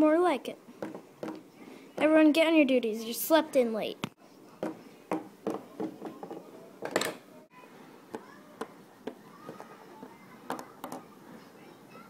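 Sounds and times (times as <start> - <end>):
plastic toys tapping on wooden table: 0.8 - 1.4, 4.6 - 7.2, 8.1 - 11.0.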